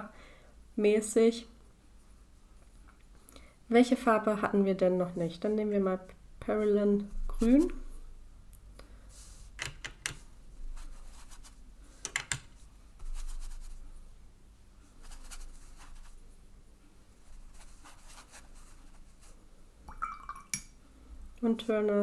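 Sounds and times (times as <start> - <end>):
brush scratching on paper: 10.6 - 11.7, 12.6 - 14.0, 14.9 - 16.3, 17.1 - 19.4.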